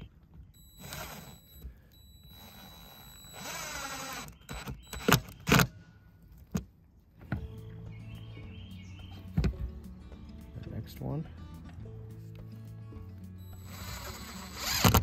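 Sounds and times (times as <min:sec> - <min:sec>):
impact driver driving screw: 0:00.7 - 0:01.6, 0:02.2 - 0:05.7, 0:13.6 - 0:15.0.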